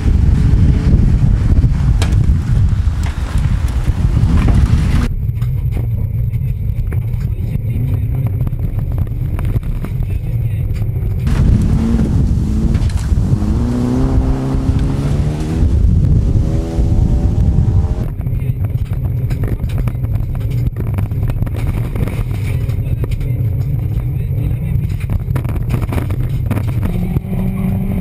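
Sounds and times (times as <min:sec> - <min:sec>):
car engine accelerating: 0:00.0 - 0:05.1, 0:10.7 - 0:22.6, 0:23.3 - 0:28.0
road rumble: 0:00.0 - 0:28.0.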